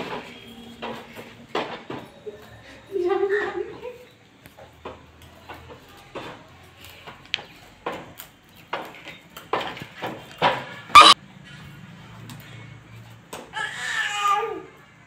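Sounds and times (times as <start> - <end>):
plastic rocking horse clacking: 4.6 - 10.8.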